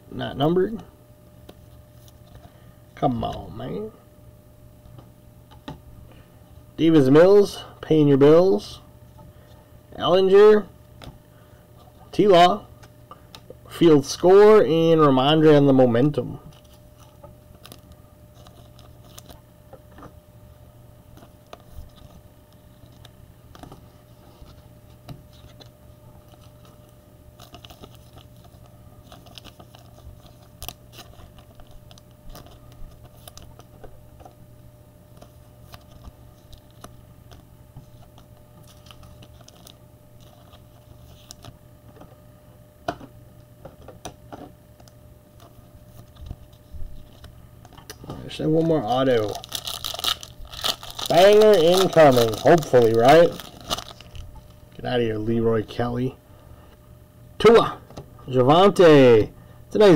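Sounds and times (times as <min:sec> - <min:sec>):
card wrappers crinkling: 0:16.5 - 0:19.4, 0:25.3 - 0:33.8, 0:35.1 - 0:41.6, 0:48.3 - 0:54.8
cards being shuffled: 0:21.1 - 0:34.3, 0:48.2 - 0:54.6.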